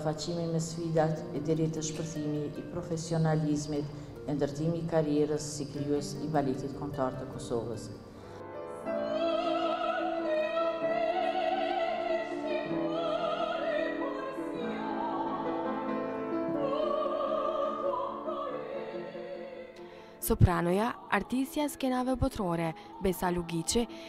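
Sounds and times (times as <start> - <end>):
piano accompaniment: 0.0 - 24.0
operatic soprano singing: 8.8 - 24.0.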